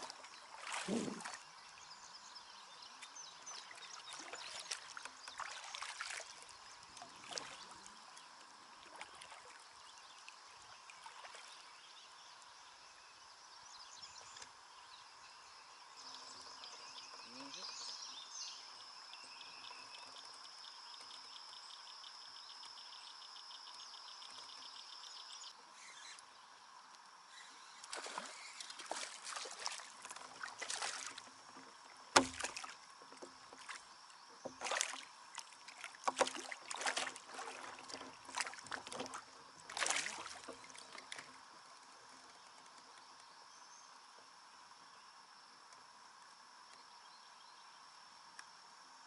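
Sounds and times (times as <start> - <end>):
kayak paddle splashing: 0.0 - 2.2, 3.0 - 12.0, 27.8 - 43.1.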